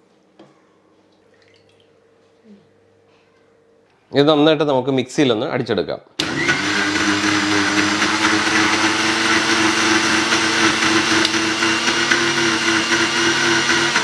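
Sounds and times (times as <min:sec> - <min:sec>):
mixer grinder motor whine: 0:06.2 - 0:14.0.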